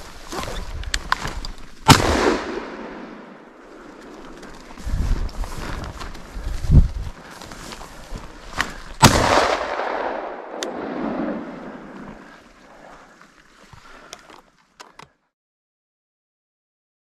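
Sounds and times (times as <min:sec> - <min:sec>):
shotgun shot with echo: 0:01.9 - 0:03.2, 0:09.0 - 0:11.5.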